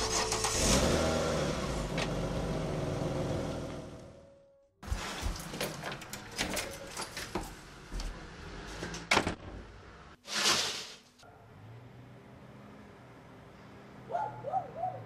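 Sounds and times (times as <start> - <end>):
door clicks and rattles: 5.3 - 7.6.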